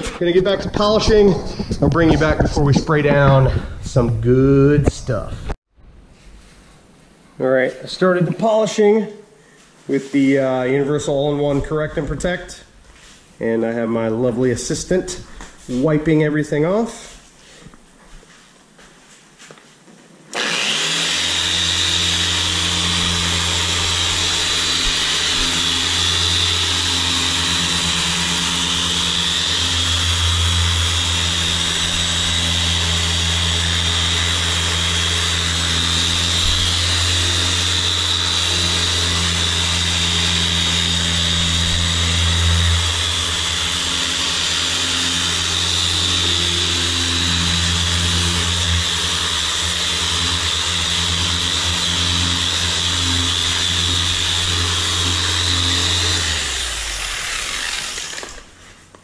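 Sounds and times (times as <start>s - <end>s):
electric polisher running: 20.3s - 58.6s.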